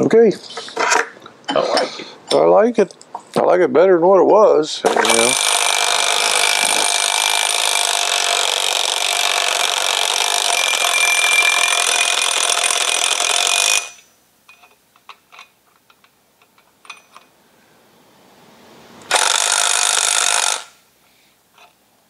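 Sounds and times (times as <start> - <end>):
cordless drill whirring: 19.1 - 20.7.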